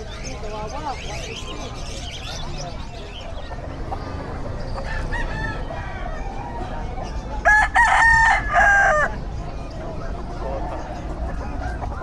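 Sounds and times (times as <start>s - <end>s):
young rooster crowing: 4.8s - 6.8s, 7.4s - 9.2s.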